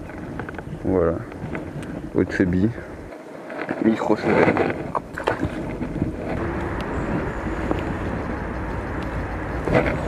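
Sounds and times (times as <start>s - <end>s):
steady rushing noise: 0.0s - 10.0s.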